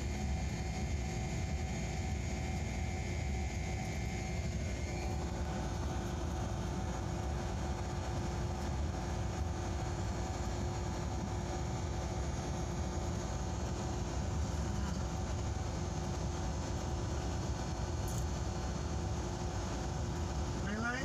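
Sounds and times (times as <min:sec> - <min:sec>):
faint high whine: 0:00.0 - 0:21.0
locomotive engine drone: 0:00.0 - 0:21.0.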